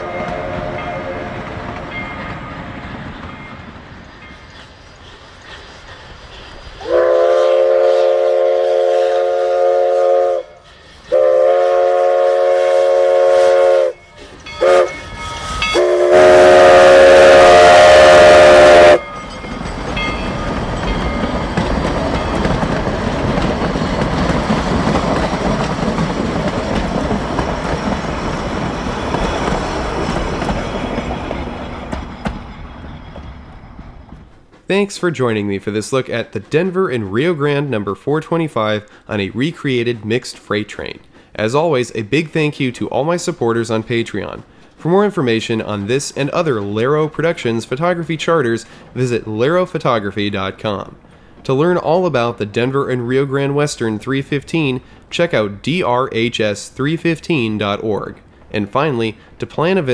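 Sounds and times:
steam whistle blasts: 0.0 - 1.4, 6.8 - 19.0
train wheels rumbling and clattering: 0.0 - 59.9
hiss of steam: 3.6 - 18.8.

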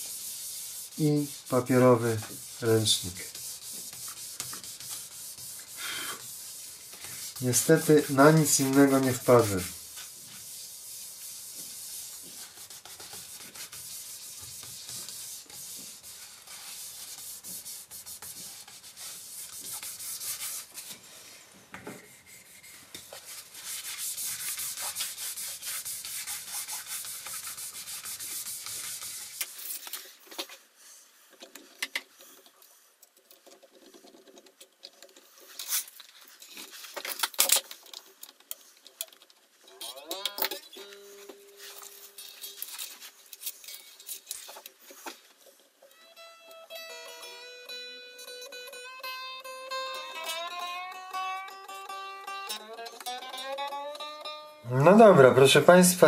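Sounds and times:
paper towel rubbing guitar body: 0.0 - 21.1, 22.1 - 29.6
clicks and handling noises: 31.3 - 46.0.

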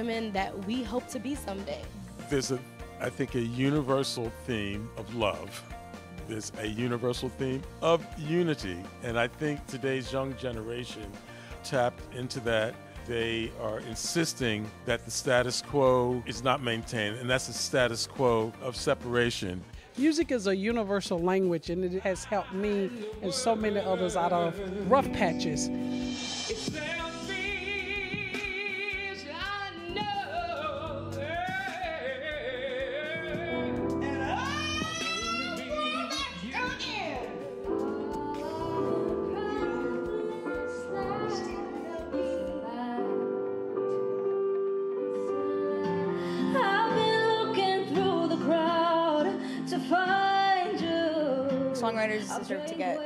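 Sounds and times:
woman singing with vibrato: 22.4 - 25.6, 34.0 - 43.3, 45.3 - 53.0
piano playing chords: 23.8 - 31.7, 32.4 - 48.3.

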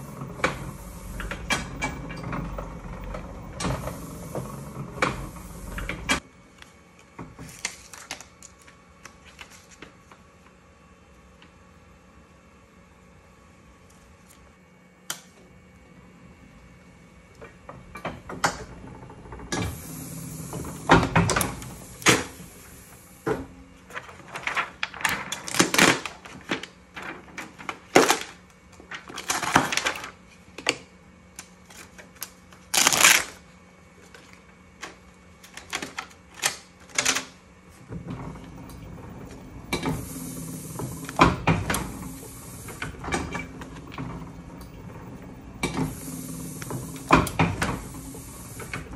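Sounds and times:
printing press clicks and clanks: 0.0 - 6.3, 17.3 - 33.2, 34.1 - 48.9
paper sliding and rustling: 7.4 - 9.9, 23.8 - 30.4.

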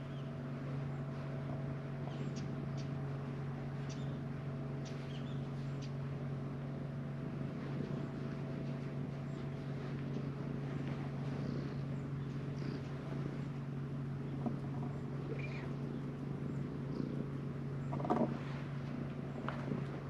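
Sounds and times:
cat purring: 10.1 - 13.6, 14.2 - 20.0.

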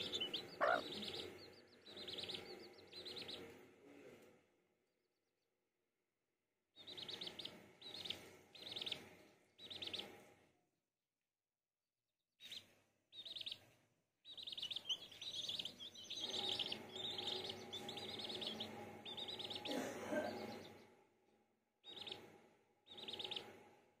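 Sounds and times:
chicks peeping: 0.0 - 3.6, 6.8 - 10.2, 12.4 - 13.7, 14.3 - 20.8, 21.8 - 22.3, 22.9 - 23.6.

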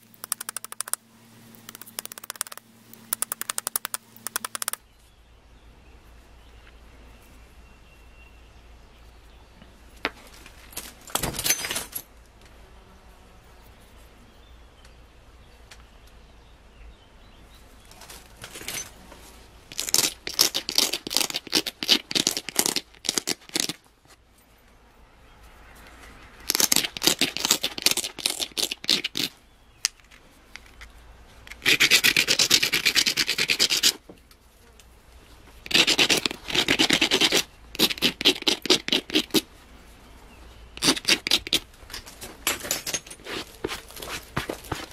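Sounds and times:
stone rasping on flint: 0.1 - 1.0, 1.6 - 4.8, 19.7 - 23.8, 26.4 - 29.3, 31.5 - 34.0, 35.7 - 39.5, 40.8 - 41.6, 43.2 - 44.9.

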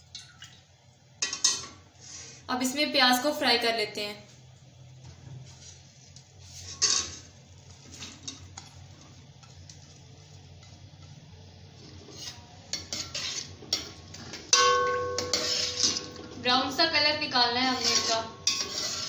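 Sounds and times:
onions sizzling in oil: 6.3 - 19.0
ladle scraping metal pan: 6.5 - 7.3, 11.9 - 16.8, 17.5 - 19.0
pan ringing: 14.5 - 16.8.

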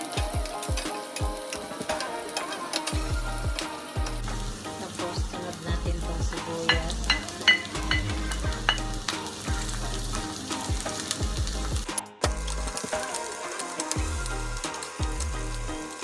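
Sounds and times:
food sizzling in hot oil: 0.0 - 16.0
spatula tapping pan: 6.5 - 9.4.

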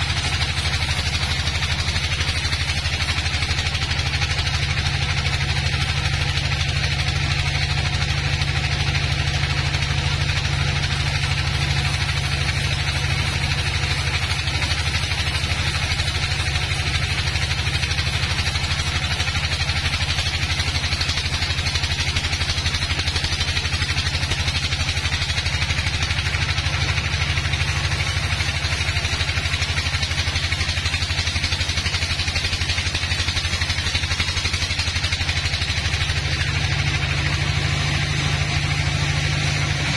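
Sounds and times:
band sawmill drone: 0.0 - 39.9
saw blade hissing through log: 0.0 - 39.9.

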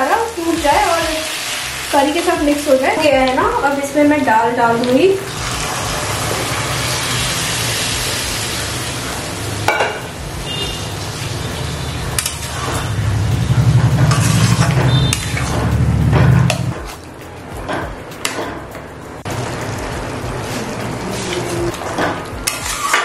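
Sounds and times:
food sizzling in a pan: 0.0 - 13.2, 19.3 - 23.0.

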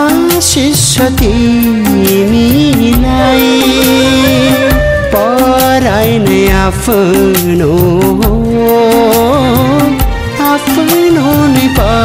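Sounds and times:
song with sliding held notes: 0.0 - 12.0
steady beat: 2.5 - 8.4.

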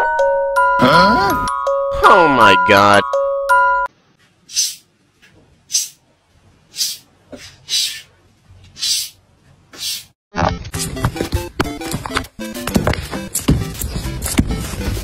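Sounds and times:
cat hissing: 6.7 - 8.1.

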